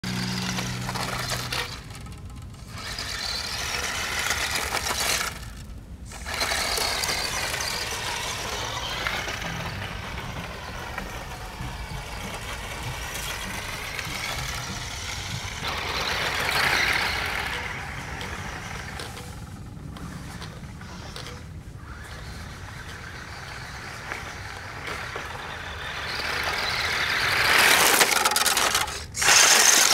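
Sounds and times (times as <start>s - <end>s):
electric motor whining: 0.0s - 29.9s
tyres rolling over gravel: 0.0s - 29.9s.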